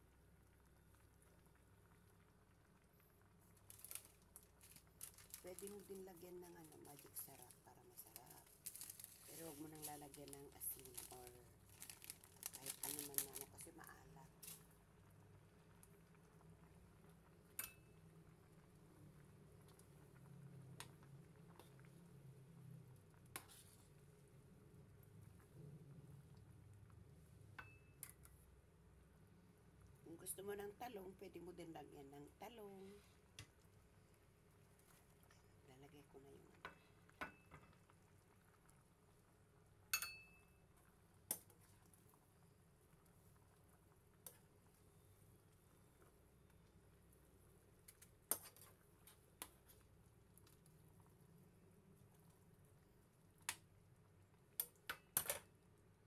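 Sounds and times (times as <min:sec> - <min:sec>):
kitchenware clinking on metal pot: 0:39.9 - 0:40.4.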